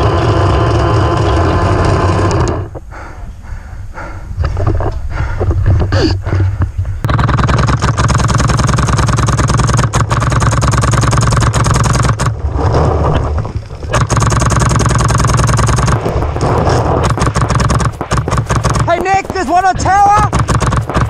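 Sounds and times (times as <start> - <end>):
paintball markers firing: 7.0 - 12.3, 13.9 - 21.0.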